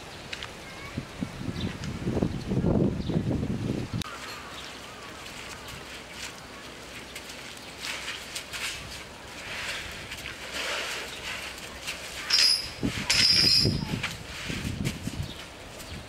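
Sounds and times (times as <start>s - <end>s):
elephants shuffling: 4.0s - 16.0s
elephant squealing: 12.2s - 14.0s.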